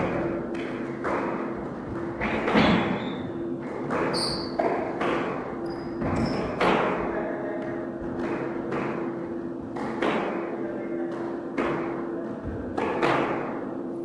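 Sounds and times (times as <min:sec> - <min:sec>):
squash ball knocks: 0:00.0 - 0:03.0, 0:03.6 - 0:07.0, 0:07.6 - 0:13.6
steady low hum: 0:00.0 - 0:14.0
short high squeaks: 0:04.1 - 0:04.6.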